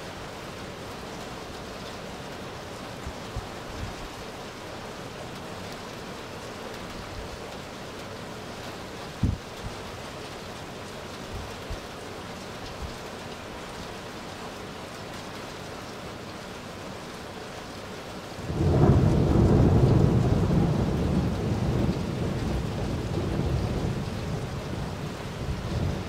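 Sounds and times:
steady rain: 0.0s - 26.0s
low rumble of thunder: 18.4s - 26.0s.

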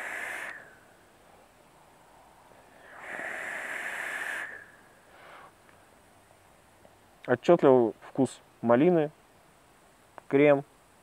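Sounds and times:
airflow hissing through atomizer: 0.0s - 0.8s, 2.7s - 5.6s
person breathing out: 0.0s - 0.8s, 2.0s - 5.6s.

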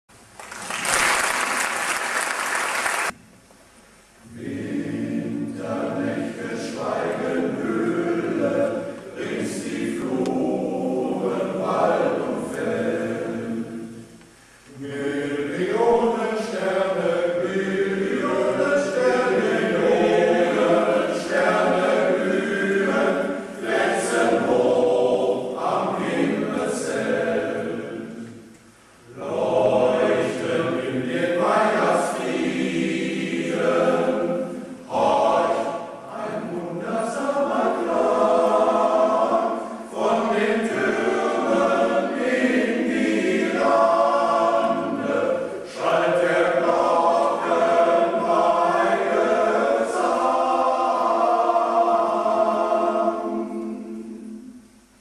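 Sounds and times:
applause: 0.3s - 3.2s
male voice choir singing: 4.2s - 14.1s, 14.7s - 28.4s, 29.1s - 54.5s.

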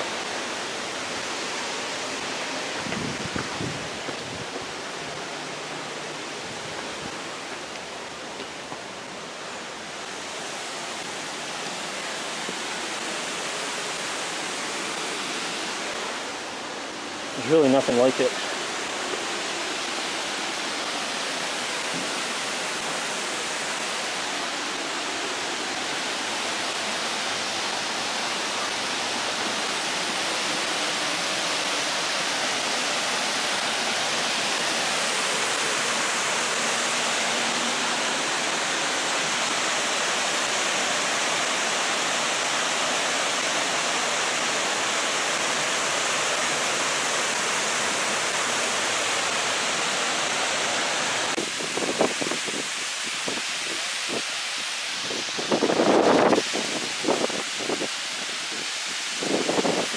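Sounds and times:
waterfall pouring over rocks: 0.0s - 59.9s.

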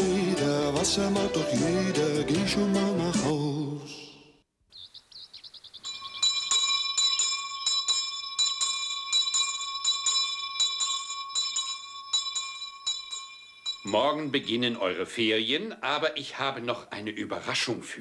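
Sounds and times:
electric bell ringing: 5.8s - 15.1s.

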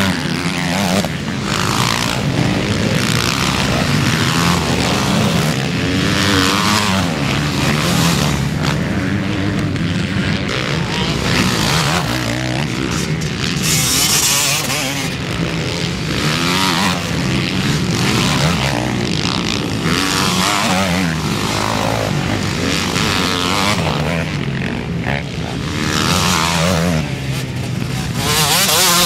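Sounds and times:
motocross bikes racing: 0.0s - 29.0s.

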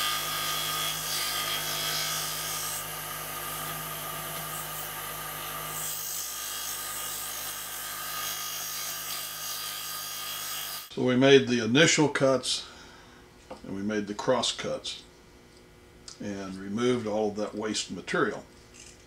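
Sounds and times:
scroll saw cutting wood: 0.0s - 10.9s.

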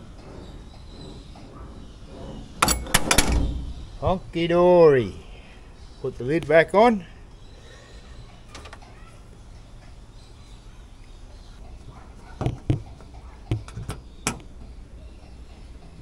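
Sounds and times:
lid panel knocking: 12.4s - 14.5s.

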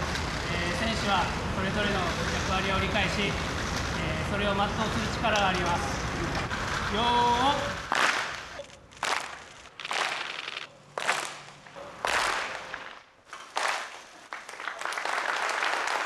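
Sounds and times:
group single handclap: 7.9s - 8.4s, 9.0s - 16.0s
steady applause: 7.9s - 16.0s.

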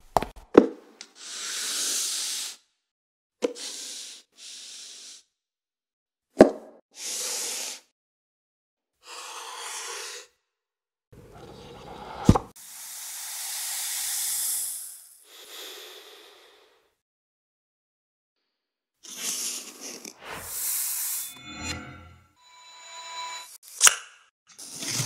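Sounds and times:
person sniffing: 1.2s - 2.6s, 3.4s - 5.2s, 7.0s - 7.9s, 9.1s - 10.4s, 12.6s - 16.9s.

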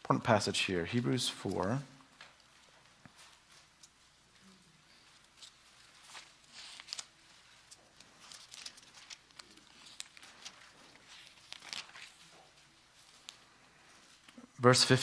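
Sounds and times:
pages flicking and rustling: 1.4s - 14.4s.

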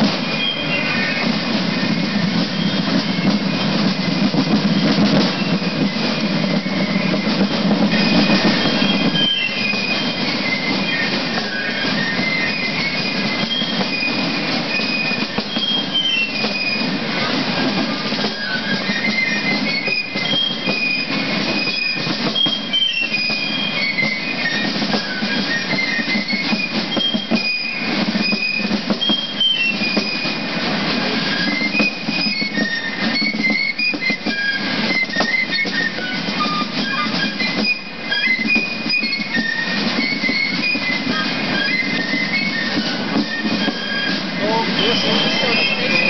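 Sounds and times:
fast drum strokes and rolls: 0.0s - 46.0s
piccolo melody: 33.2s - 46.0s.

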